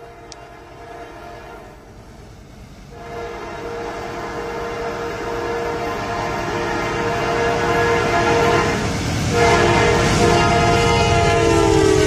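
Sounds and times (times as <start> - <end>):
locomotive air horn: 0.0 - 1.9, 2.9 - 12.0
train rumbling on rails: 0.0 - 12.0.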